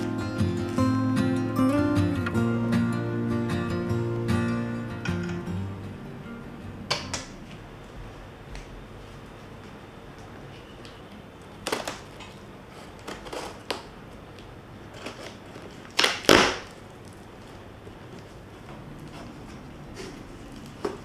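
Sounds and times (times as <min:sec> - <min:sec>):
scissors cutting packing tape: 0:11.6 - 0:14.0.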